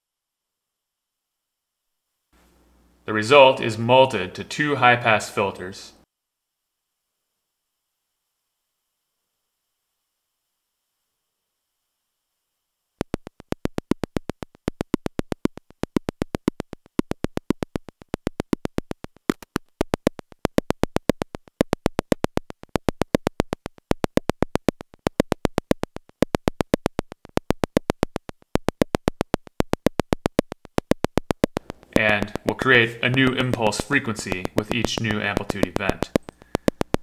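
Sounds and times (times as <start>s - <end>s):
synthesizer rapid sharp clicks: 13.0s - 37.0s.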